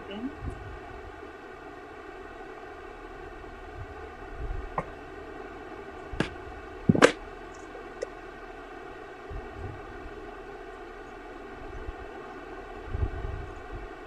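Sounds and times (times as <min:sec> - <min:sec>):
steady buzzing hum: 0:00.0 - 0:14.0
phone knocking on desk: 0:06.9 - 0:07.2.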